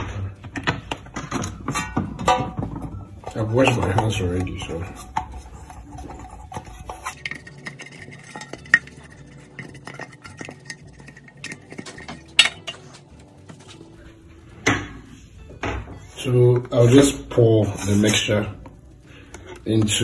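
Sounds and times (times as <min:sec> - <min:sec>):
metal baking pan clinking and knocking: 0:00.6 - 0:05.4, 0:06.0 - 0:13.0.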